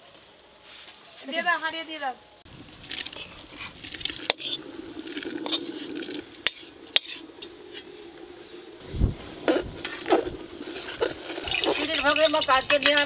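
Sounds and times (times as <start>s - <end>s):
metal spatula scraping a wok: 2.8s - 8.7s, 9.4s - 13.0s.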